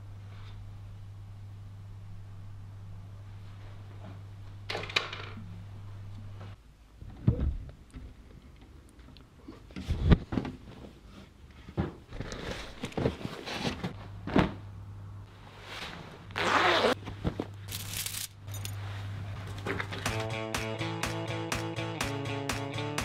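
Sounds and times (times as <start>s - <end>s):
low steady hum: 0.0s - 11.8s, 12.8s - 16.4s
clothing rustling: 15.4s - 19.5s.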